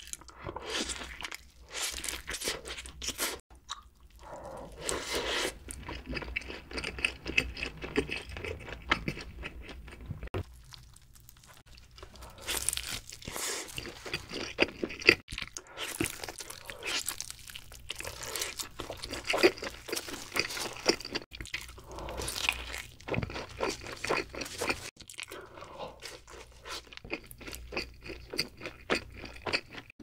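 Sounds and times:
wet chewing and crunching: 0.0s - 30.0s
crisp crunching bites: 10.4s - 25.3s.

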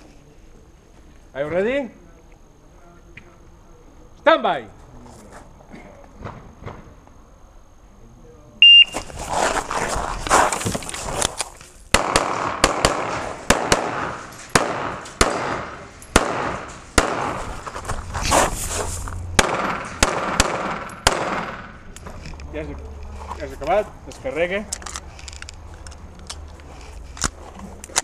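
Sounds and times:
footsteps crunching on gravel: 8.8s - 11.9s, 16.5s - 20.0s
rustling: 8.8s - 11.9s, 16.6s - 20.0s
pistol shots: 11.9s - 17.5s, 19.4s - 21.8s.

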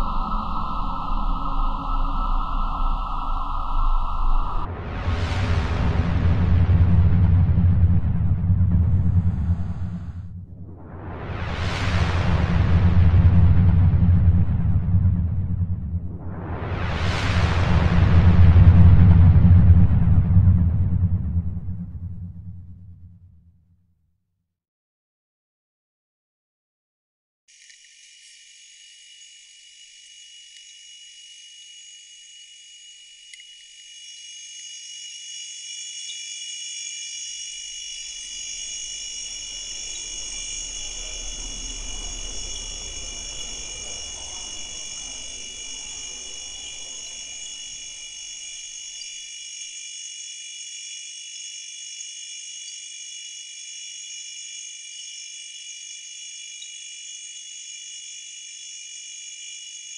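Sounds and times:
high-pitched insect-like drone: 0.0s - 6.3s, 27.5s - 59.9s
low rumbling noise: 0.0s - 23.4s, 37.7s - 48.6s.

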